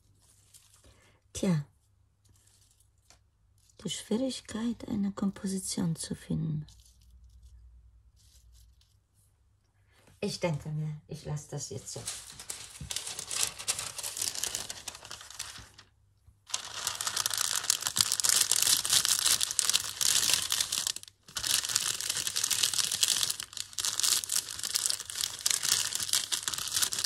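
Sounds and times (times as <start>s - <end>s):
paper rustling and crinkling: 0.0s - 1.0s, 2.2s - 3.9s, 6.7s - 9.0s, 11.8s - 15.9s, 16.5s - 27.0s.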